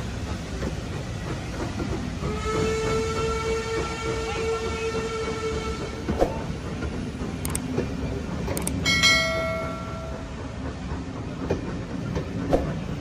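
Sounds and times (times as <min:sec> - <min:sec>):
train wheels rumbling on rails: 0:00.0 - 0:13.0
wheels clicking over rail joints: 0:05.9 - 0:13.0.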